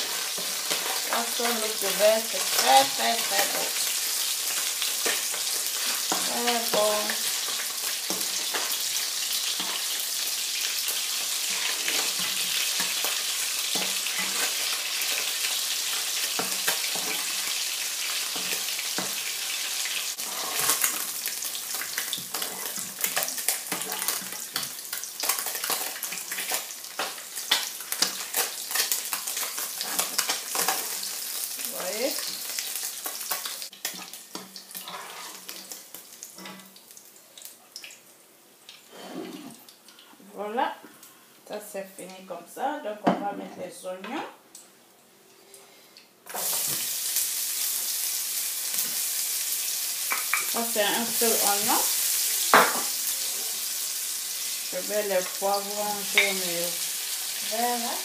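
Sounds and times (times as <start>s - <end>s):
fish sizzling in frying pan: 0.0s - 39.0s, 46.2s - 58.0s
utensil scraping pan: 20.2s - 21.0s, 34.8s - 35.5s.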